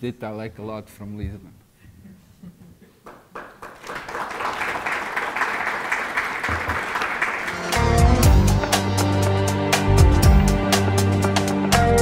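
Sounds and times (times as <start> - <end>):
audience applauding: 3.0 - 9.4
music with strong bass: 7.8 - 12.0.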